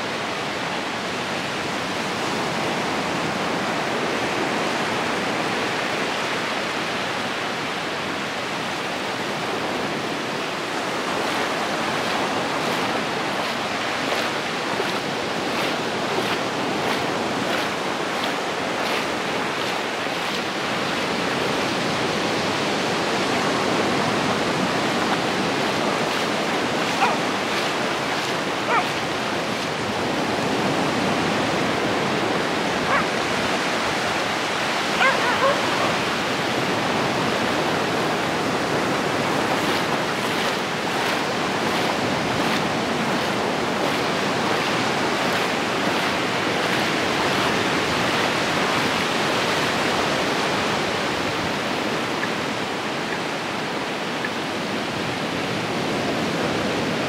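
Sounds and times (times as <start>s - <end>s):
small waves washing on sand: 0.0s - 57.0s
dog barking: 27.0s - 27.2s, 28.6s - 29.0s, 32.9s - 33.2s, 35.0s - 36.0s.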